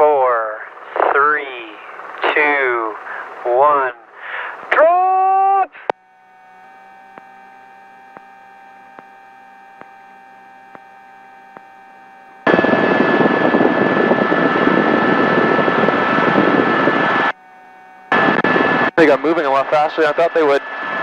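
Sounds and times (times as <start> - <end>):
helicopter turbine and rotor noise: 0.0 - 5.2, 12.4 - 21.0
steady high whine: 0.0 - 21.0
steady hum of even tones: 0.0 - 21.0.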